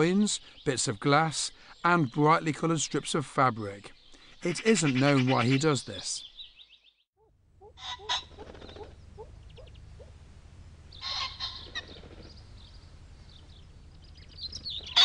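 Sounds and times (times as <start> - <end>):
pheasant crowing: 7.6 - 10.2, 10.9 - 12.4.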